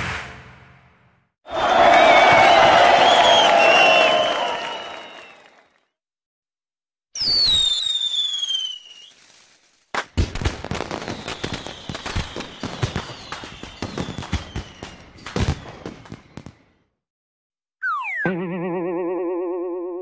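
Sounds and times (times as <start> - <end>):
firework whistle falling: 1.9 - 5.5, 7.2 - 9.5, 10.8 - 16.6
crackling pops: 8.0 - 15.4.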